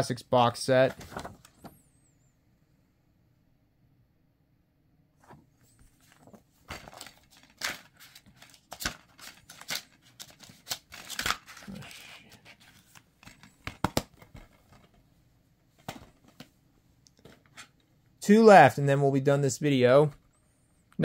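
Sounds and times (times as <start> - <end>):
paper rustling: 0.9 - 1.8, 5.2 - 15.0.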